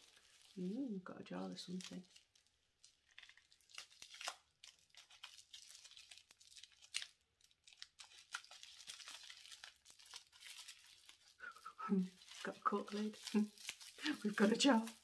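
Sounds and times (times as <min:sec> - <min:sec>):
plastic wrapping crinkling: 0:00.0 - 0:15.0.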